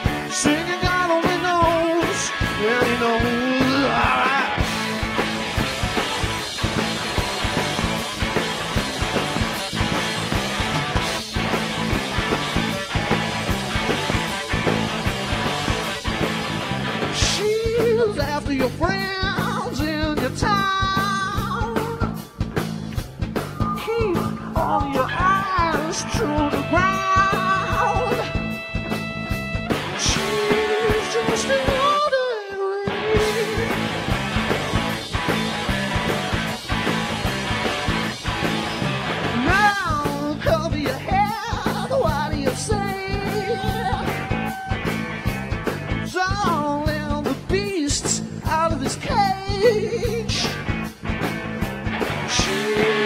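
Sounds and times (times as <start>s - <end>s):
man singing: 0.0s - 4.8s, 17.1s - 22.2s, 23.7s - 28.4s, 30.0s - 33.9s, 39.4s - 44.9s, 46.0s - 50.6s, 52.2s - 53.0s
drums: 0.0s - 53.0s
electric guitar: 0.0s - 53.0s
rock band playing: 0.0s - 53.0s
blues harmonica wailing: 23.6s - 32.1s, 43.2s - 45.2s.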